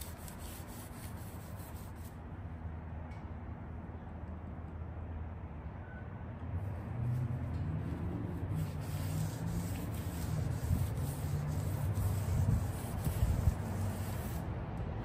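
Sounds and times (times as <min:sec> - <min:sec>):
scrubbing on car bodywork: 0:07.8 - 0:14.4.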